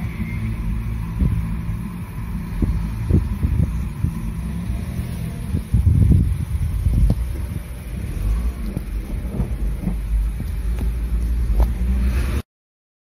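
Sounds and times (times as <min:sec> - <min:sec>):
cars driving past: 0:00.0 - 0:12.5
wind buffeting microphone: 0:01.0 - 0:11.8.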